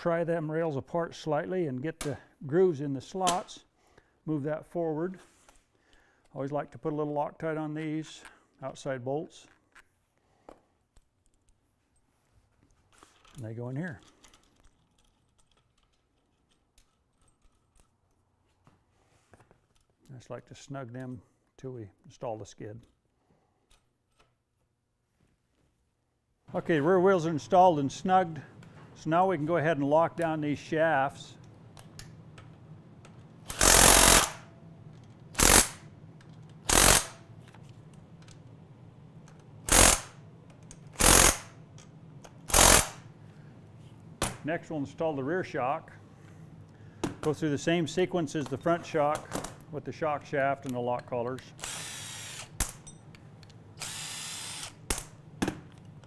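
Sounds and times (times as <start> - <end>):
metal parts clicking and tapping: 12.6 - 18.6
impact driver bursts: 33.5 - 34.5, 35.3 - 35.8, 36.6 - 37.2, 39.7 - 40.2, 41.0 - 41.6, 42.5 - 43.0, 51.6 - 52.6, 53.8 - 55.0.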